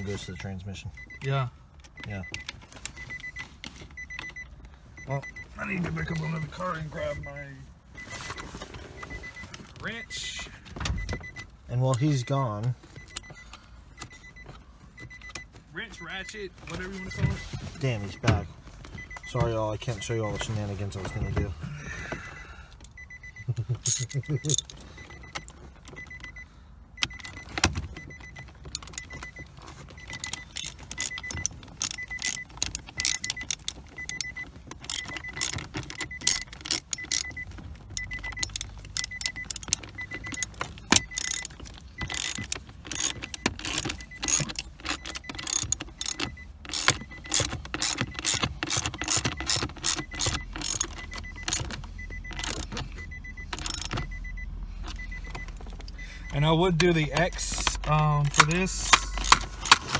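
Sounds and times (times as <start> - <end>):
faint high beep: 4.0 - 29.4, 38.0 - 42.4
socket ratchet clicking: 30.0 - 37.4, 38.0 - 54.2, 57.6 - 59.9.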